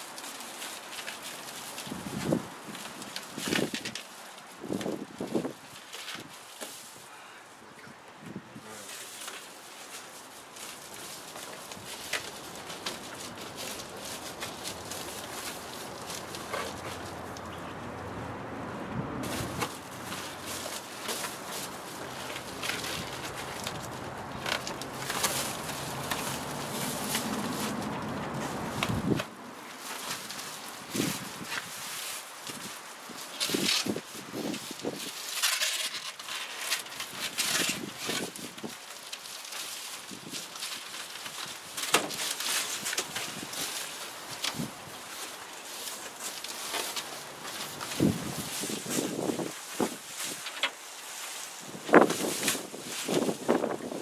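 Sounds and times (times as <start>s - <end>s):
foil insulation rustling and crinkling: 0.0s - 7.4s, 8.6s - 17.6s, 19.2s - 54.0s
sharp clicks and crackles: 19.3s - 29.3s.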